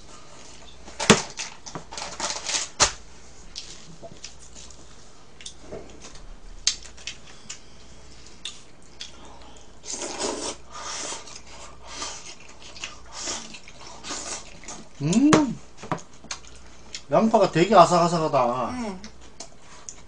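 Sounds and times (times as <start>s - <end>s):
noodles being slurped: 9.8s - 14.9s.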